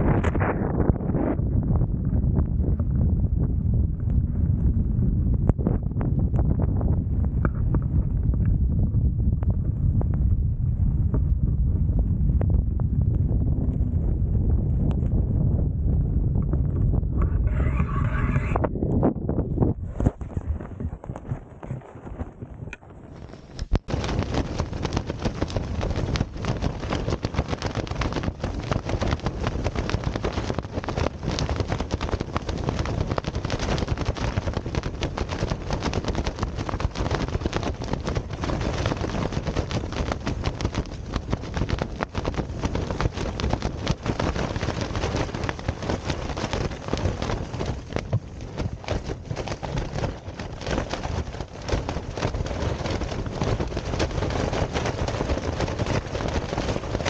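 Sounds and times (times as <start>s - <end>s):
wind rushing: 0.0s - 57.0s
tent fabric flapping and snapping: 17.5s - 57.0s.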